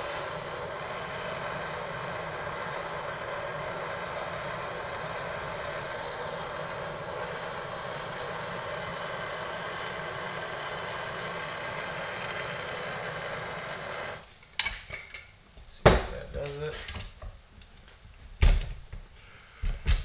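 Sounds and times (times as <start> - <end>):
propane torch hissing: 0.0 - 14.3.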